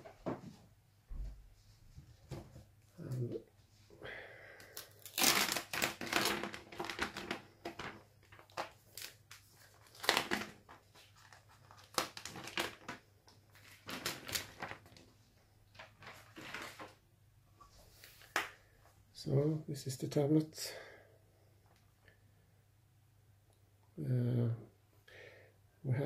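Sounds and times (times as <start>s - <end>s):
plastic packaging crinkling: 4.6s - 17.0s.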